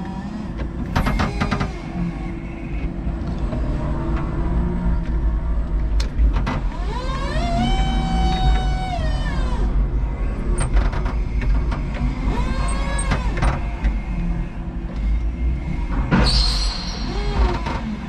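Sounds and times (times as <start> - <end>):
electric forklift motors whining: 0.0 - 18.0
steady low rumble: 1.8 - 6.9.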